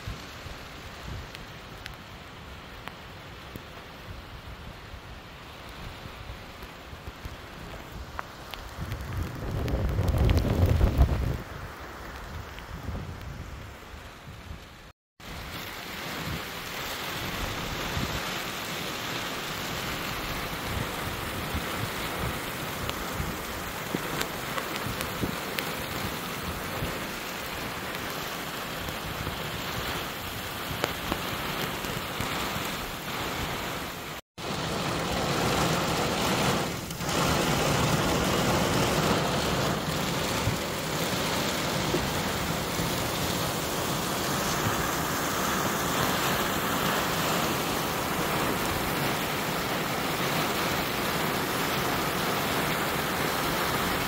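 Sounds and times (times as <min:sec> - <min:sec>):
heavy rain pouring: 0:00.0 - 0:54.0
sharp raindrop hits: 0:06.6 - 0:11.4, 0:34.1 - 0:53.2.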